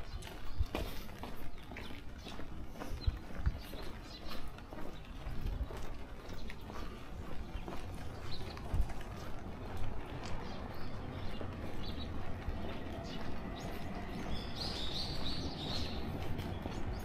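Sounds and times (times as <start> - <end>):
birds chirping: 0.0 - 17.0
footsteps: 0.0 - 17.0.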